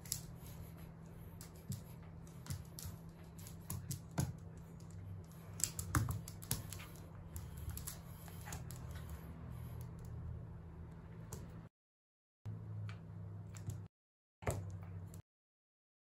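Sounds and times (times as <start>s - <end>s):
dog claws clicking on wooden floor: 0.0s - 9.2s.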